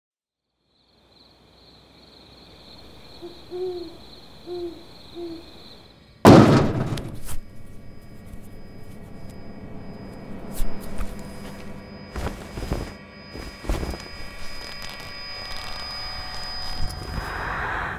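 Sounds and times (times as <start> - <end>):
owl hooting: 2.5 - 5.9
steady low hum: 2.5 - 17.9
sudden loud boom: 6.3 - 7.2.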